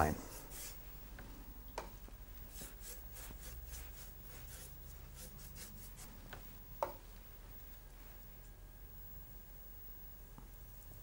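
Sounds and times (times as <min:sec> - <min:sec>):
brush swishing on paper: 0:00.2 - 0:00.9, 0:02.5 - 0:06.1.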